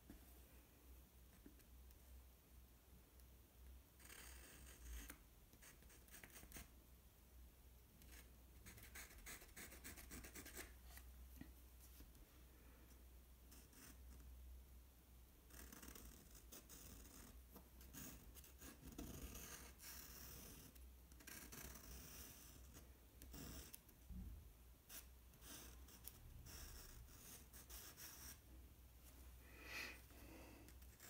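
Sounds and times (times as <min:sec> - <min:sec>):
pencil scratching on paper: 0:08.0 - 0:10.8, 0:15.5 - 0:23.9, 0:24.8 - 0:28.4.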